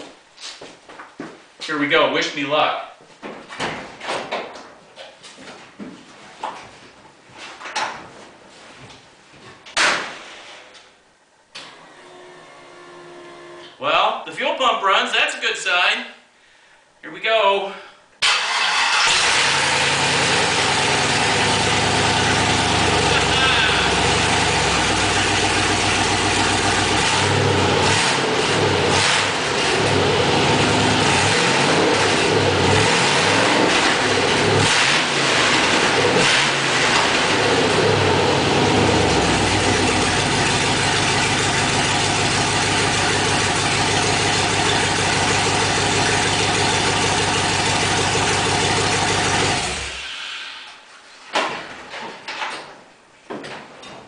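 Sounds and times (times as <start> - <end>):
engine revving and idling: 18.7 - 50.1.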